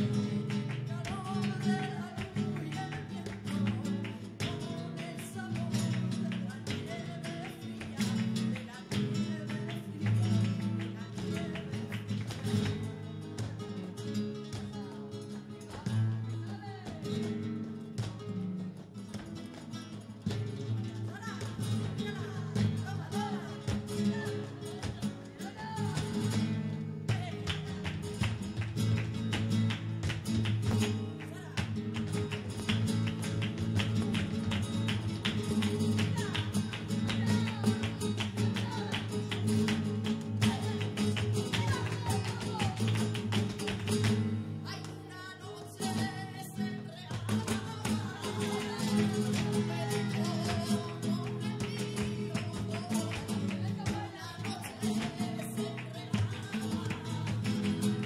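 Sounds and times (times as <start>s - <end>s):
flamenco guitar: 0.0s - 58.0s
sharp percussive taps: 24.8s - 44.3s.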